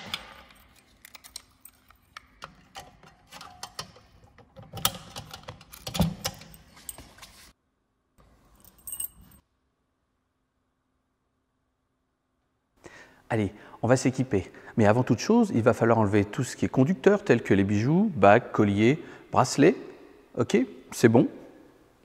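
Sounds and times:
keys jangling: 0.0 - 4.0, 4.6 - 7.4, 8.4 - 9.4
padlock clicks and rattles: 0.0 - 6.7.

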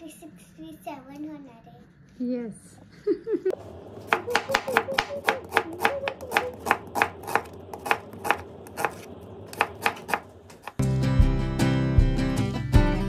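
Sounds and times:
knife chopping onion on board: 4.0 - 10.8
guitar music: 10.8 - 13.0.

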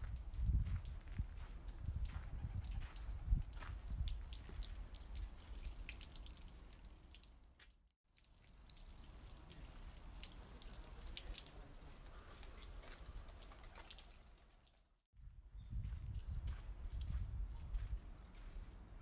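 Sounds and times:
water trickling and dripping: 0.1 - 14.9.

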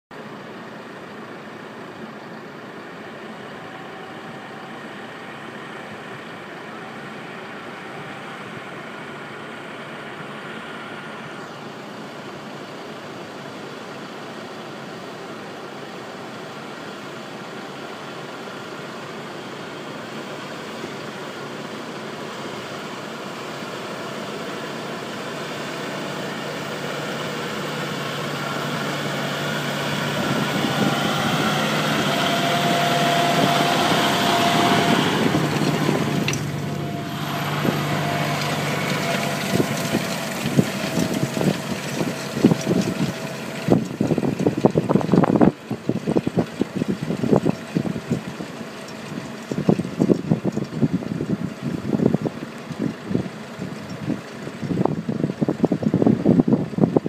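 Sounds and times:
tractor engine running: 0.1 - 57.0
low hum: 28.1 - 44.6.

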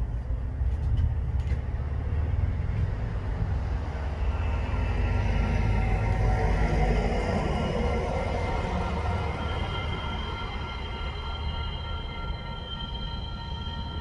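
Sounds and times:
steady low rumble: 0.0 - 14.0
level crossing warning bells: 4.2 - 14.0.

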